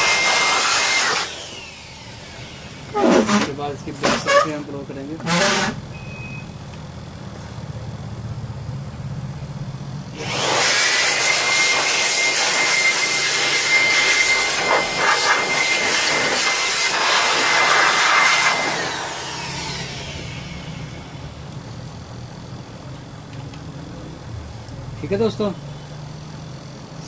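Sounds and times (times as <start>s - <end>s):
electric dust blower whining: 0.0s - 5.8s, 10.1s - 22.8s.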